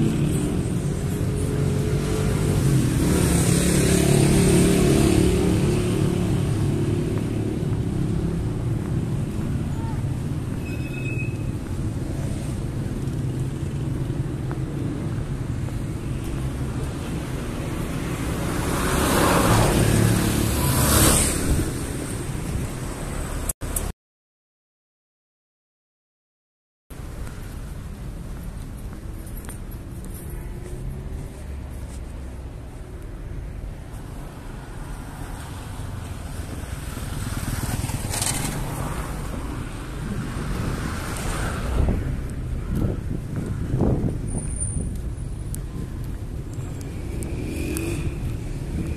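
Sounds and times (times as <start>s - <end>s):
car engine and tyres approaching: 0.0s - 23.8s, 27.0s - 48.9s
low road noise rumble: 0.0s - 23.9s, 26.9s - 48.9s
vehicles passing close by: 0.0s - 23.9s, 27.0s - 48.9s
wind rumble on microphone: 19.6s - 23.0s, 36.2s - 48.9s.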